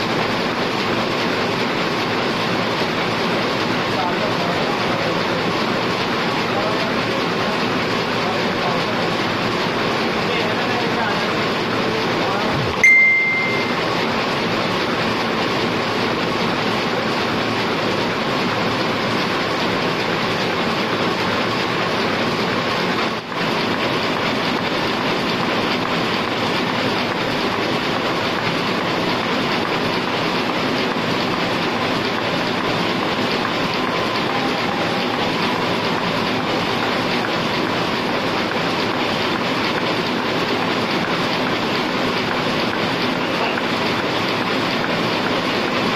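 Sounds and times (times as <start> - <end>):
printing press running: 0.0 - 45.9
loud clack with high ring: 12.8 - 14.1.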